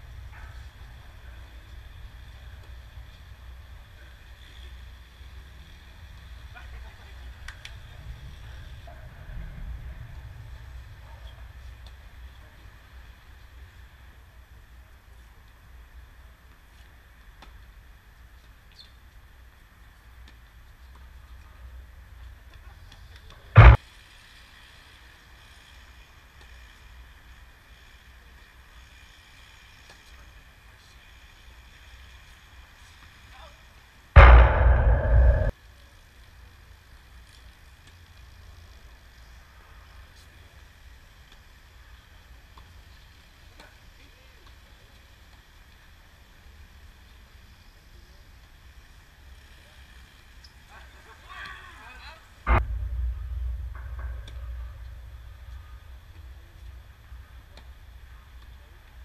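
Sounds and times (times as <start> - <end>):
loud thump: 23.6 - 23.8, 34.2 - 35.5, 52.5 - 57.5.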